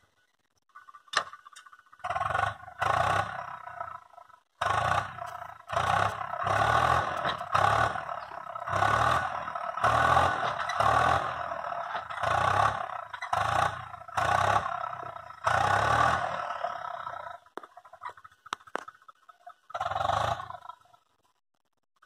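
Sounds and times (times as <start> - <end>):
tractor engine pulsing under load: 0.0 - 21.4.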